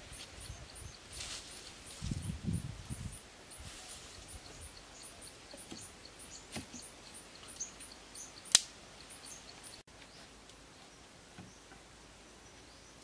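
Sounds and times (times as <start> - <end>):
sharp crack: 8.5 - 8.8.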